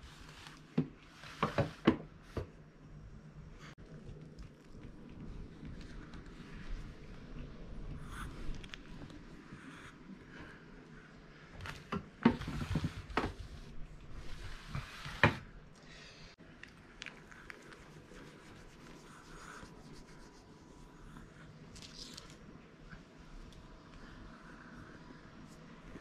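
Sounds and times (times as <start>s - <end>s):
mop scraping wooden floor: 0.0s - 2.0s, 12.2s - 15.5s.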